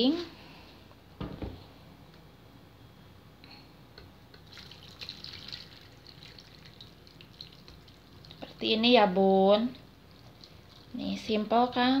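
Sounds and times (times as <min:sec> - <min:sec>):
low room noise: 0:00.0 - 0:12.0
liquid dripping: 0:04.3 - 0:08.7, 0:09.9 - 0:11.0.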